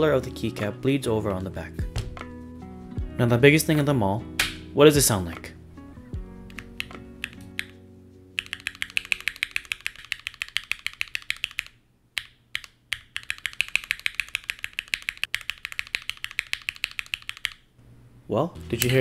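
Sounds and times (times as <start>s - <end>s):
guitar music: 0.0s - 8.4s
mechanical keyboard typing: 6.5s - 7.8s, 8.4s - 17.6s.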